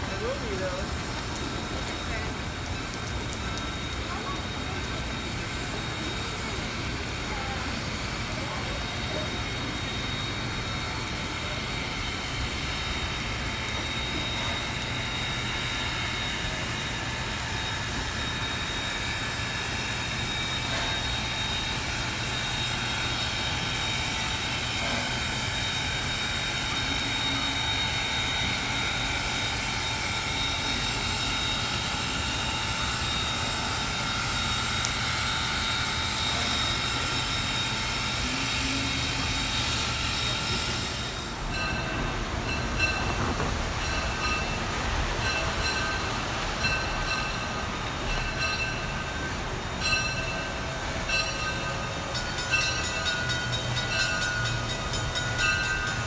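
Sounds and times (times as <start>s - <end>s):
rain hissing: 0.0s - 18.9s
steam locomotive venting steam: 0.0s - 56.0s
thin high whine: 1.6s - 56.0s.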